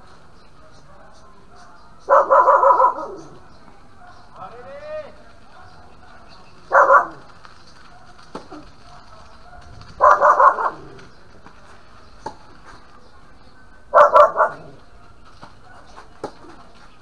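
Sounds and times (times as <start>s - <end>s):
dog barking: 1.5s - 4.4s, 5.5s - 11.1s, 13.9s - 16.0s.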